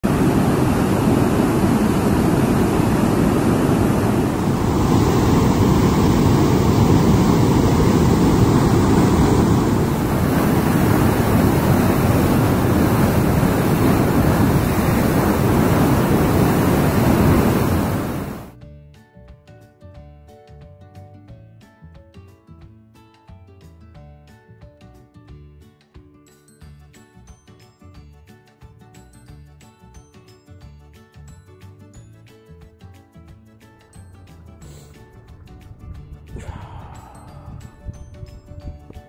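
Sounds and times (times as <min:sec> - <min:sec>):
water rushing down a channel: 0:00.0 - 0:18.5.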